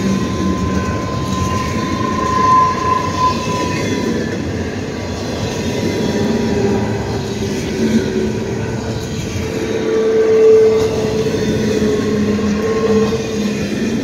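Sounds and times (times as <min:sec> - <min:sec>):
ringing tone: 0:00.0 - 0:04.1
train wheels rumbling on rail: 0:00.0 - 0:14.0.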